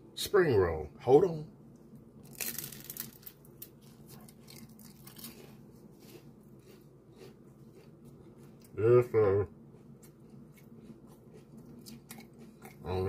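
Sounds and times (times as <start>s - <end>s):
crunching bite of fried food: 2.3s - 8.7s.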